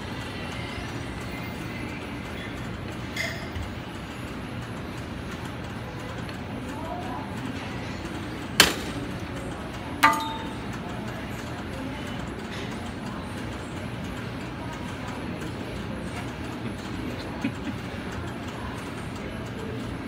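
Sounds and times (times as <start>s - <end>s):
steady background hum: 0.0s - 20.0s
metal clank with ring: 10.0s - 10.7s.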